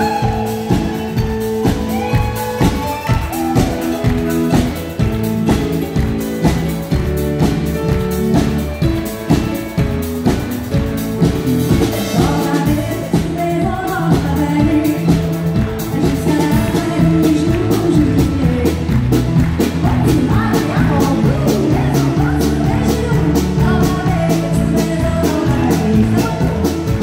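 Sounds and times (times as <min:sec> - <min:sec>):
woman singing: 0:00.0 - 0:05.0, 0:11.8 - 0:27.0
live country band playing: 0:00.0 - 0:27.0.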